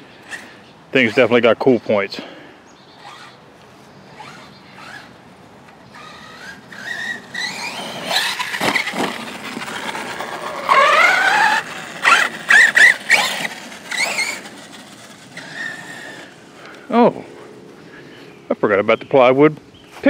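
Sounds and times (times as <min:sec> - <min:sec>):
electric motor whining: 0:04.1 - 0:05.2, 0:05.8 - 0:16.5.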